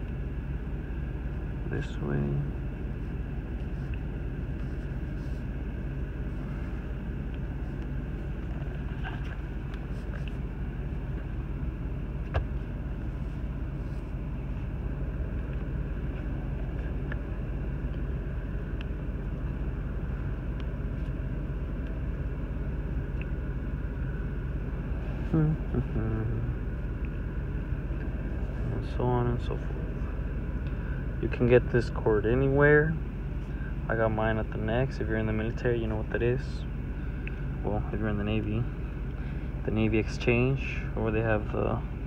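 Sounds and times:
truck engine idling: 0:00.0 - 0:42.0.

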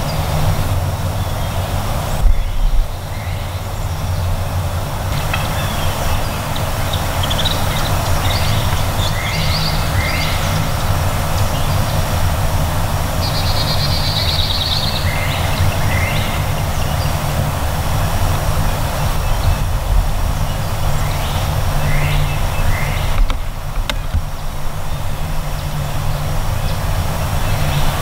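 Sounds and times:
songbirds chirping: 0:00.0 - 0:28.0
steady low rumble: 0:00.0 - 0:28.0
bird trill: 0:05.2 - 0:10.7.

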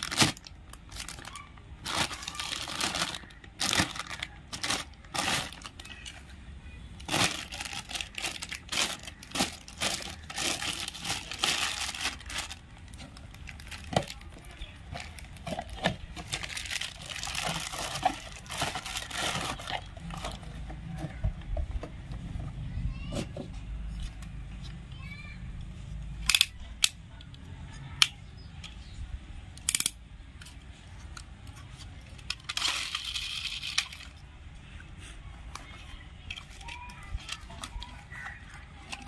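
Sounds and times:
plastic bag crinkling: 0:00.0 - 0:06.1, 0:07.0 - 0:20.5, 0:32.3 - 0:34.1.

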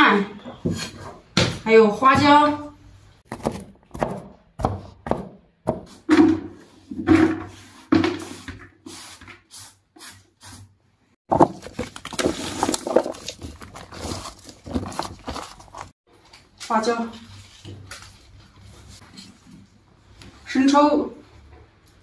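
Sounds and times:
cleaver chopping on cutting board: 0:03.3 - 0:06.5.

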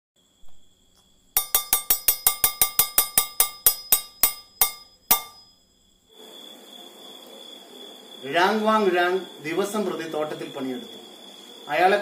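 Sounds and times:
metal bell struck ringing: 0:01.4 - 0:05.5.

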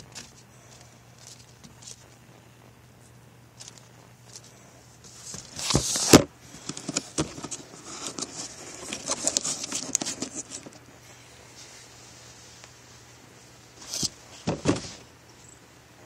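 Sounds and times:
cardboard rustling under paws: 0:00.0 - 0:02.1, 0:03.6 - 0:10.8, 0:13.7 - 0:15.1.

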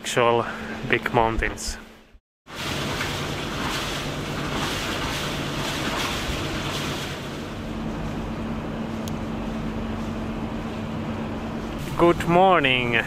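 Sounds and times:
boat engine humming: 0:02.0 - 0:13.0
wind and water hiss: 0:02.5 - 0:07.7.

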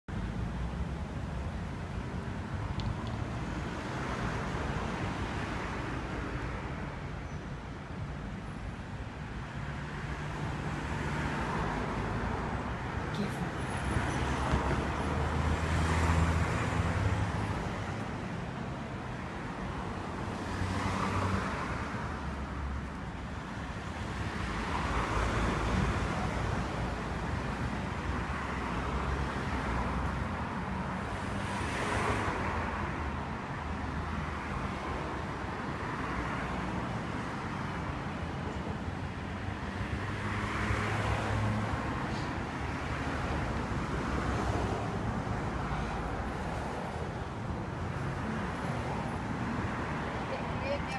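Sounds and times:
road traffic hum: 0:00.1 - 0:50.9
vehicles passing: 0:00.1 - 0:50.9.

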